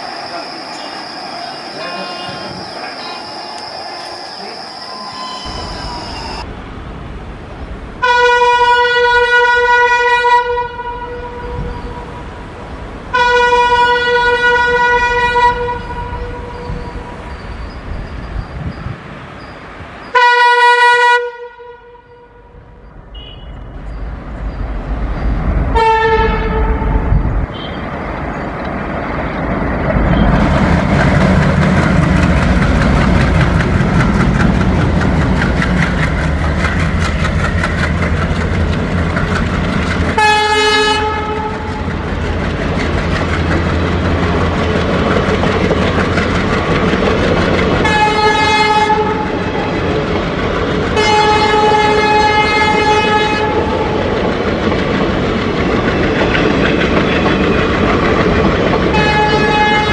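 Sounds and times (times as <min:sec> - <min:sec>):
train horn blasts: 0:08.0 - 0:12.4, 0:13.1 - 0:17.2, 0:20.1 - 0:23.8, 0:25.7 - 0:27.8, 0:40.1 - 0:42.0, 0:47.8 - 0:49.5, 0:50.9 - 0:54.0, 0:58.9 - 0:59.9
diesel engine rumble: 0:26.7 - 0:47.9
train wheels clattering over rail joints: 0:29.5 - 0:59.9.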